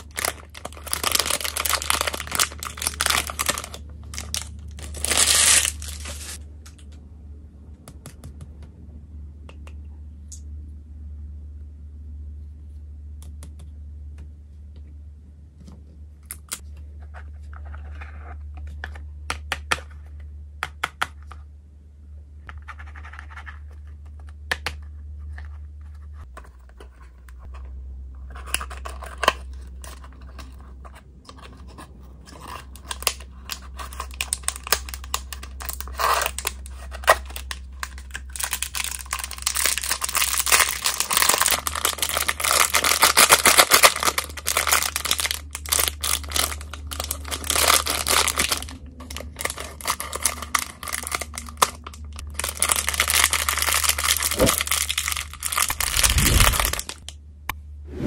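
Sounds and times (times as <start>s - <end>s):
plastic bag crinkling: 0.0s - 6.4s, 32.7s - 57.1s
steady low hum: 0.0s - 58.0s.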